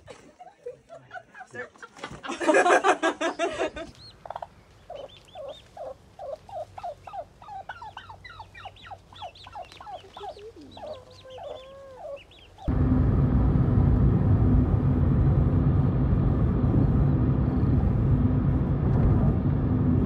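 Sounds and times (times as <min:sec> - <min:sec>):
turkey chirping: 0:03.2 - 0:12.7
low turkey call: 0:04.0 - 0:12.7.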